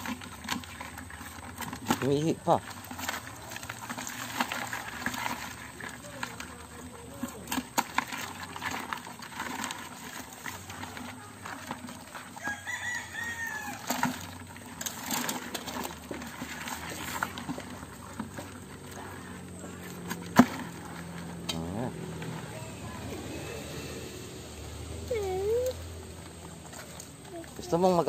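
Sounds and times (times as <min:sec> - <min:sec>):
crabs clattering in plastic bucket: 0:00.0 - 0:28.0
rooster crowing: 0:12.3 - 0:14.3.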